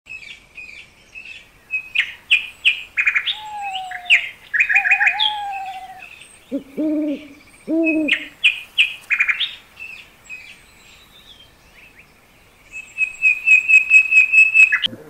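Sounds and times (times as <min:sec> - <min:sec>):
birds chirping: 0:00.1 - 0:15.0
bird whistled calls: 0:01.8 - 0:08.6, 0:12.8 - 0:14.9
owl hooting: 0:03.0 - 0:08.6.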